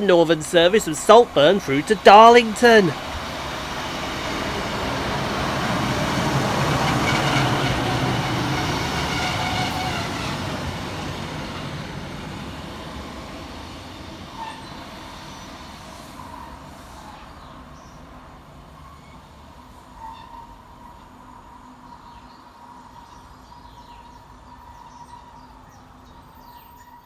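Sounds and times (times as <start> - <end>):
train wheels on rails: 0.0 - 21.1
diesel train passing: 0.0 - 27.0.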